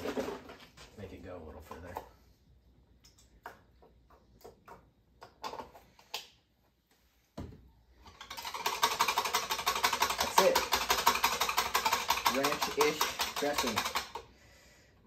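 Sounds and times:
whisk beating in glass bowl: 8.3 - 14.2.

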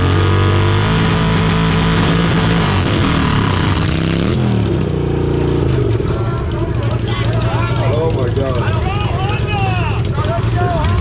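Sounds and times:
motorcycle engines revving: 0.0 - 11.0.

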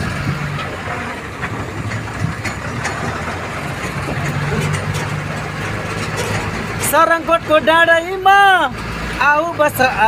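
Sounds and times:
vehicle engine running: 0.0 - 10.0
knocks and rattles: 0.4 - 7.4.

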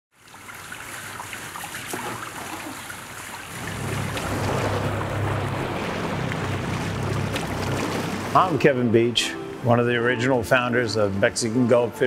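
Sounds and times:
splashing sea water: 0.1 - 9.4
wind: 0.1 - 12.0
outboard motor humming: 1.8 - 9.4.

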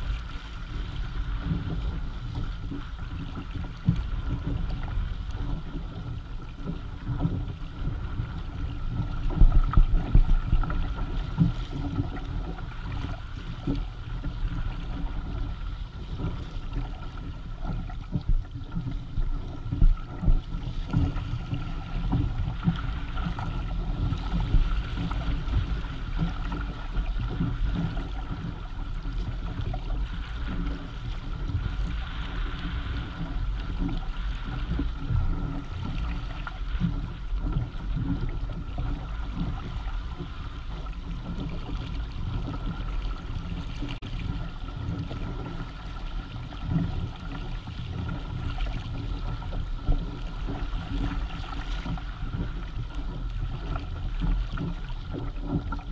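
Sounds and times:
water splashing along hull: 0.0 - 55.9
wind rumbling on microphone: 0.0 - 55.9.

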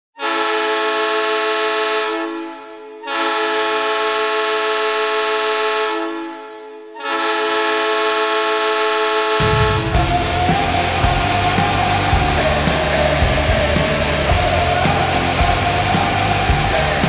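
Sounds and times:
arena goal horn blaring: 0.2 - 11.7.

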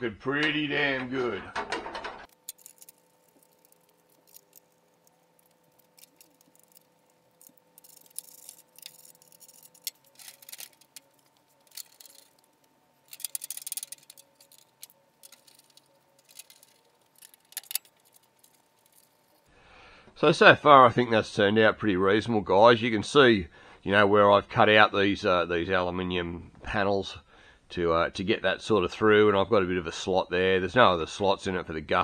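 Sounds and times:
faint steady hum: 0.0 - 32.0
metal parts clicking and rattling: 1.6 - 19.5.

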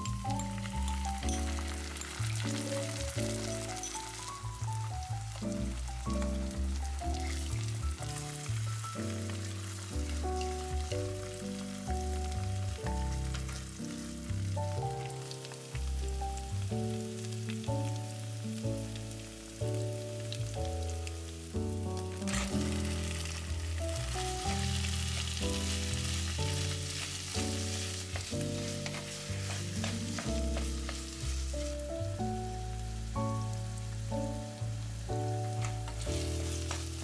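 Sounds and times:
background music with bass: 0.0 - 37.0
food sizzling in a pan: 0.0 - 37.0
wooden spatula stirring: 22.2 - 31.9, 35.5 - 37.0.

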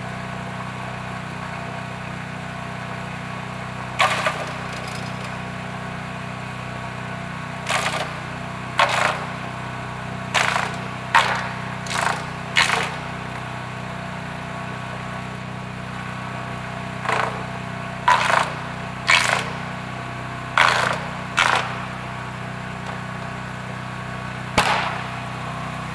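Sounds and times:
small gasoline engine running: 0.0 - 25.9
harsh cutting bursts: 4.0 - 5.3, 7.6 - 9.4, 10.3 - 13.2, 17.0 - 19.8, 20.4 - 22.2.

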